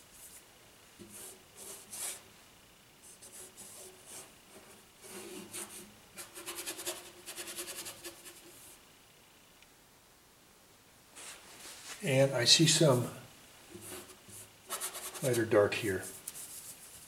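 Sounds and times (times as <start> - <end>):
paintbrush strokes on canvas: 0.0 - 2.3, 3.0 - 8.8, 11.2 - 12.2, 13.7 - 17.0.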